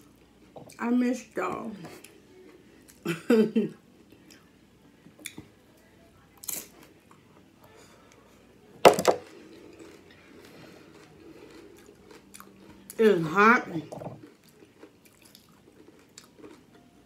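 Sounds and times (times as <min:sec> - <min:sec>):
crunching while eating: 0:09.2 - 0:13.0, 0:14.2 - 0:16.8.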